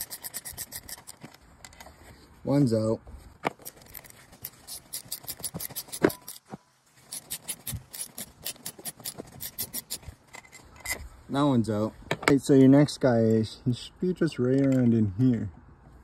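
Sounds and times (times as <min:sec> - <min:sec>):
hand ratchet clicking: 0:00.0 - 0:01.3, 0:03.6 - 0:06.4, 0:07.1 - 0:10.5.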